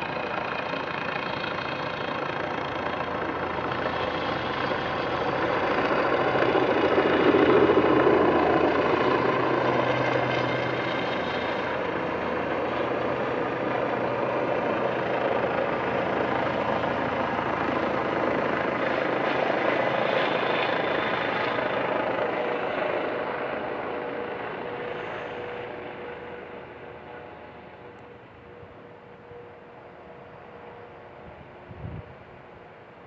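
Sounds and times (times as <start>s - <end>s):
helicopter flying past: 0.0s - 33.0s.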